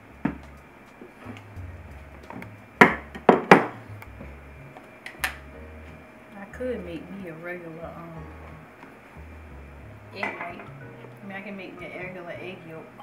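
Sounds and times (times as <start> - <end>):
objects knocking on countertop: 2.8 - 3.8.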